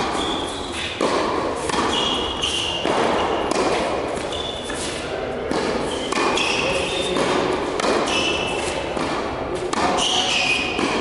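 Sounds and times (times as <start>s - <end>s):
sneakers squeaking on court: 0.0s - 5.0s, 5.8s - 7.2s, 7.9s - 8.9s, 9.8s - 11.0s
racket hitting tennis ball: 0.0s - 11.0s
tennis ball bouncing on court: 0.0s - 11.0s.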